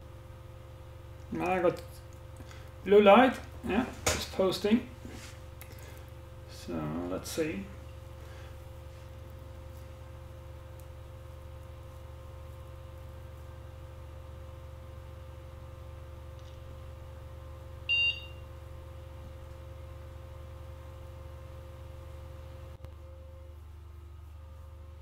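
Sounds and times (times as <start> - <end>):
computer fans humming: 0.0 - 25.0
short computer beep: 17.9 - 18.4.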